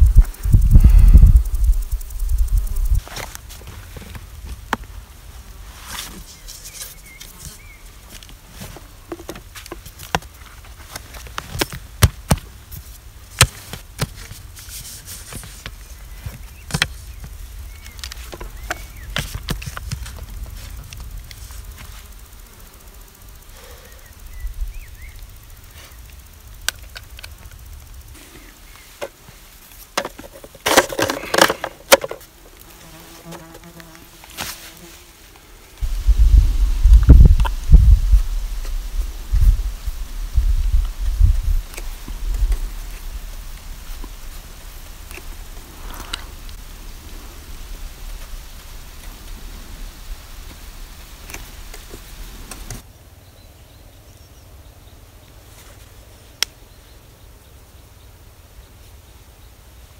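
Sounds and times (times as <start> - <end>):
fly buzzing: 0.0 - 3.1, 16.5 - 29.2, 31.0 - 52.8
wooden boards clicking and knocking: 30.0 - 32.2.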